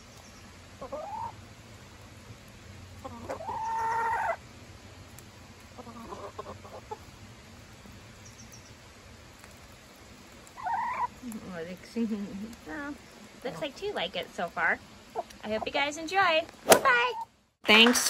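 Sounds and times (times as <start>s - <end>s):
hens clucking: 0.8s - 1.5s, 3.0s - 4.4s, 5.5s - 7.2s, 10.4s - 11.4s, 12.3s - 16.2s.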